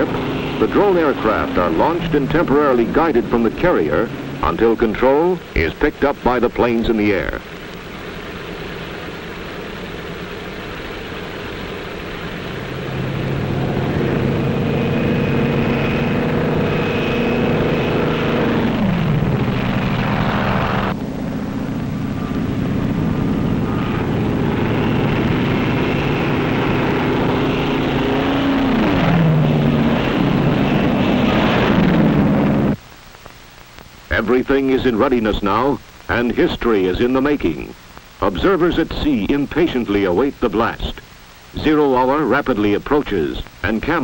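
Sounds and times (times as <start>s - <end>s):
propeller aircraft engine drone: 0.0s - 44.0s.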